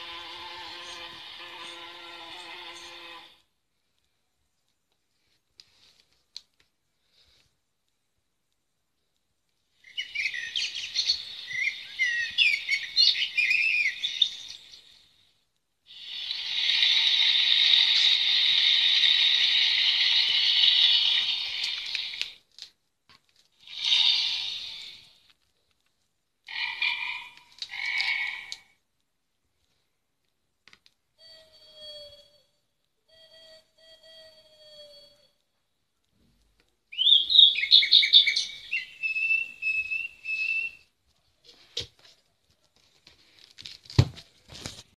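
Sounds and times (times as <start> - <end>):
recorded birdsong chirps: 0.0 - 3.4, 9.7 - 22.5, 26.5 - 28.8, 31.1 - 42.4
book knocking: 44.0 - 44.2.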